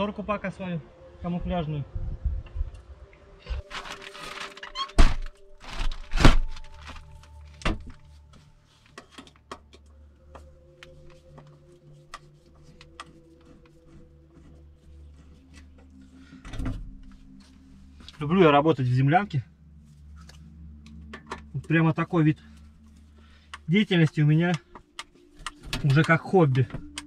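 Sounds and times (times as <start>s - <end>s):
curtain rustle: 3.7s - 7.2s.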